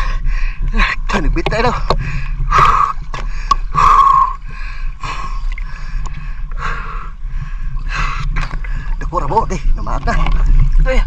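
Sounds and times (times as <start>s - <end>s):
person breathing hard: 0.0s - 0.7s, 2.0s - 9.0s
low steady rumble: 0.0s - 11.0s.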